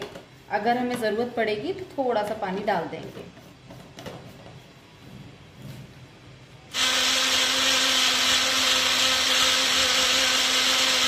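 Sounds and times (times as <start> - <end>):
mixer grinder motor whirring: 6.7 - 11.0.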